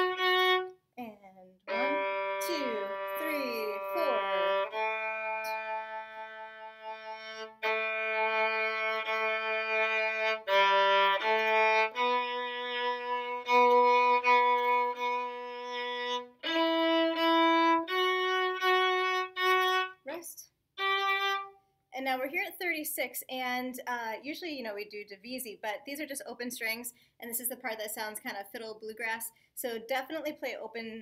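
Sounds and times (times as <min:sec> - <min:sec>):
bowed string instrument notes: 0:00.0 - 0:00.8, 0:01.6 - 0:20.1, 0:20.8 - 0:21.5.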